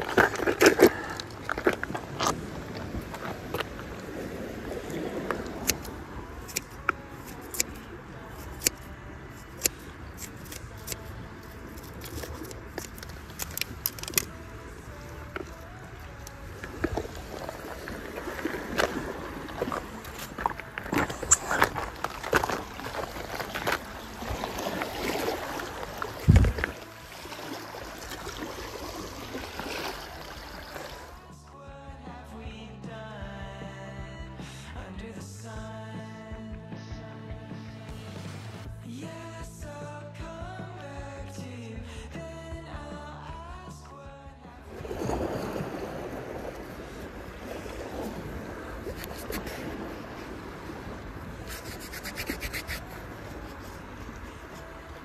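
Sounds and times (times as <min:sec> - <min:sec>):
waves lapping against rocks: 0:00.0 - 0:31.3, 0:44.6 - 0:55.0.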